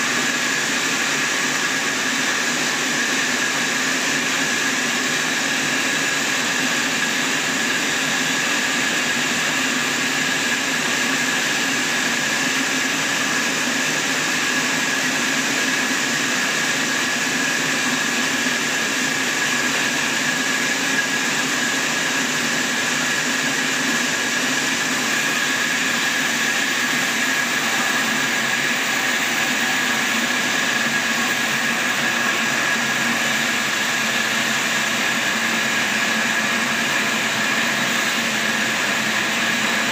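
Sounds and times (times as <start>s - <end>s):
band sawmill sawing log: 0.0s - 39.9s
high whine of saw blade: 0.0s - 39.9s.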